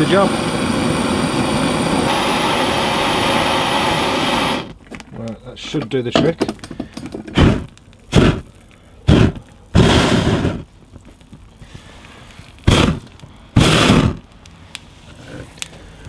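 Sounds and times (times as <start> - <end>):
person blowing hard: 0.3 - 4.7, 7.3 - 10.7, 12.6 - 14.2.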